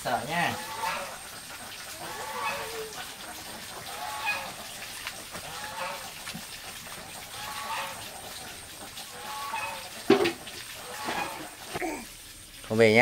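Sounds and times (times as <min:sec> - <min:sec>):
animal calling: 0:01.9 - 0:03.0.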